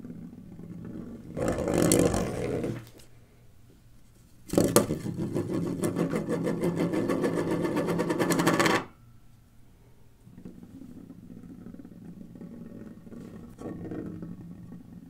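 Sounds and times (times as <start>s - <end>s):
plastic wheel rattling on tabletop: 0.8s - 2.9s, 4.5s - 8.9s.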